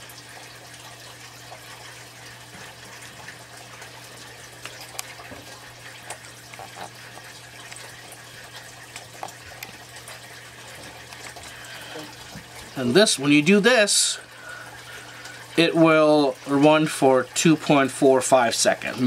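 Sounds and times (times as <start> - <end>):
running water: 0.0 - 19.0.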